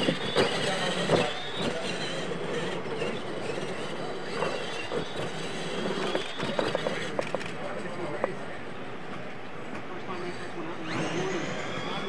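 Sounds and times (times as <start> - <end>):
toy truck electric motors whining: 0.0 - 8.1, 10.8 - 12.0.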